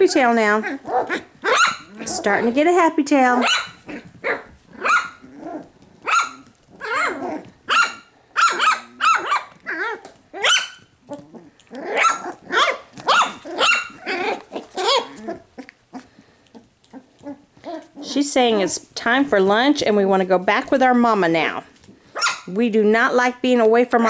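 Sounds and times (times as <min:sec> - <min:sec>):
puppies yipping and barking: 0:00.1 - 0:02.6, 0:03.4 - 0:18.9.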